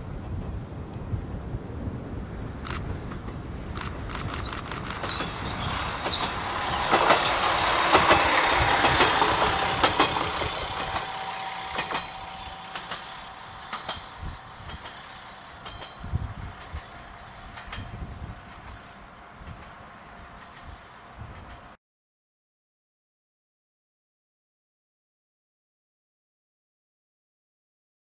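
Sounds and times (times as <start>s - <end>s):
diesel railcar passing: 0.0s - 21.8s
wheel clacks over rail joints: 2.7s - 21.7s.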